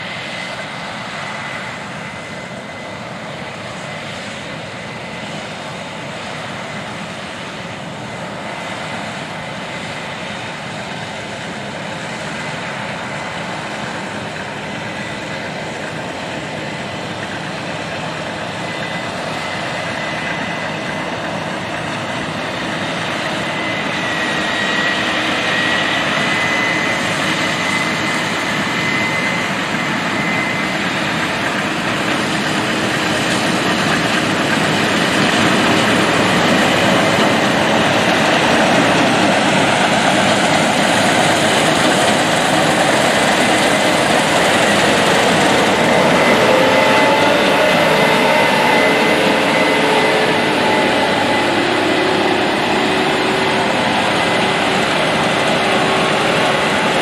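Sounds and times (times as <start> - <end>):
combine harvester droning: 0.0 - 57.0
thin high whine: 14.5 - 57.0.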